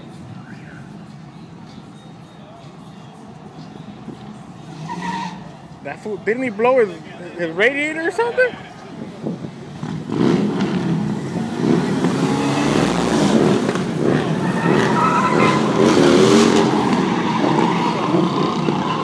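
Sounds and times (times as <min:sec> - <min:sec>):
tires squealing on pavement: 0:04.6 - 0:08.8, 0:10.1 - 0:19.0
car engine revving: 0:09.6 - 0:19.0.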